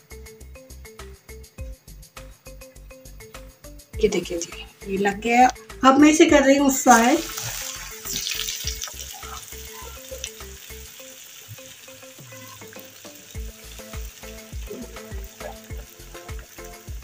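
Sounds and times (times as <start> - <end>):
oil sizzling and bubbling: 6.7 - 17.0.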